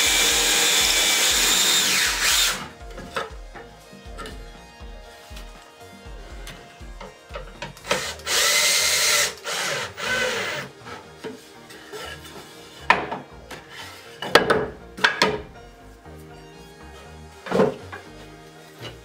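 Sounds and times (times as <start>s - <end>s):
cordless drill into wood: 0.0s - 2.8s, 7.8s - 10.7s.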